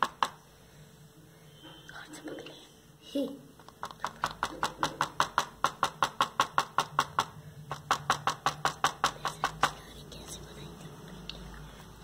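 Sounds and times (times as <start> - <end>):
brush tip tapping on board: 0.0 - 0.4, 3.6 - 9.9.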